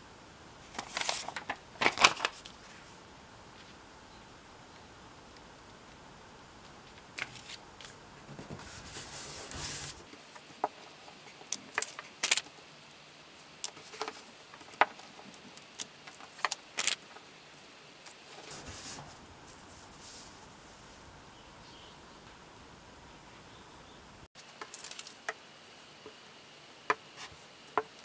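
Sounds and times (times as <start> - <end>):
paper crackling: 0.7 - 2.9, 6.9 - 12.7, 13.5 - 20.3, 24.4 - 25.9
paper rustling: 0.7 - 3.0, 6.9 - 12.6, 13.6 - 17.3, 18.0 - 20.4, 24.4 - 25.9.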